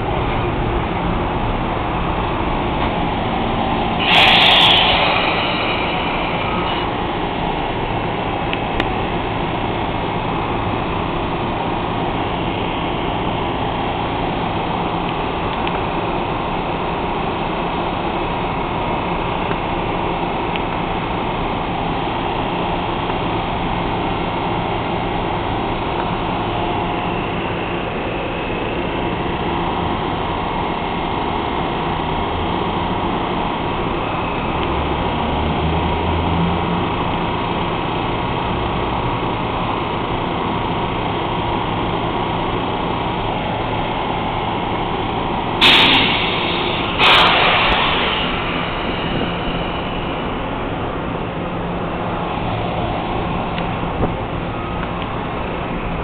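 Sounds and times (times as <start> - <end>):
train coaches humming: 0.0 - 56.0
loud bump: 45.6 - 50.2.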